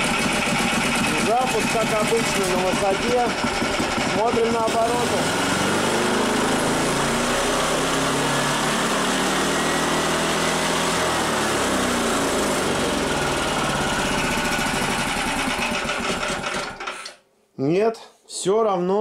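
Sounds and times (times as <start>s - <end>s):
engine revving: 0.0s - 16.8s.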